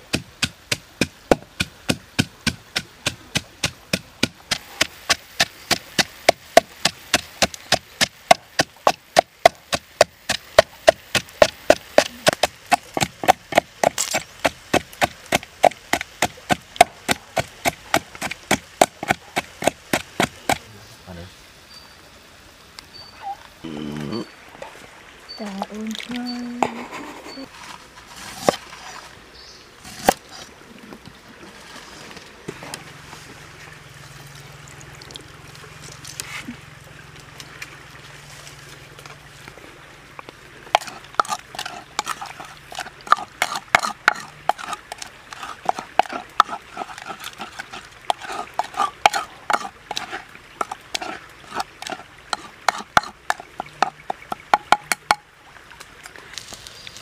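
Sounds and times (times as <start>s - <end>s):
cleaver chopping on wooden board: 0.0s - 20.6s, 40.8s - 47.1s, 51.8s - 55.2s
liquid sloshing: 40.6s - 56.6s
wooden spoon clacking in mortar: 40.8s - 55.2s.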